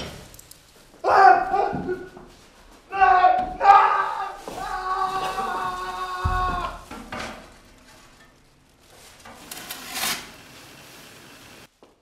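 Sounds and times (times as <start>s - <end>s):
plastic bag rustling: 4.3s - 11.7s.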